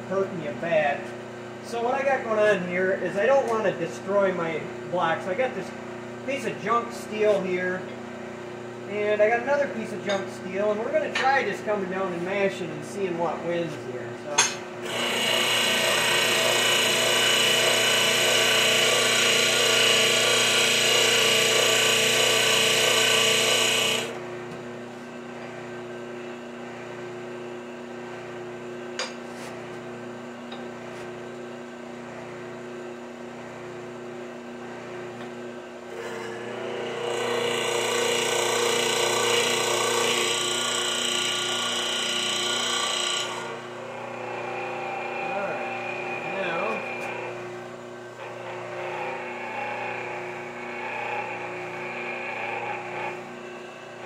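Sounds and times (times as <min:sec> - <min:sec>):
hydraulic pump whining: 0:14.8 - 0:24.2, 0:35.9 - 0:47.6.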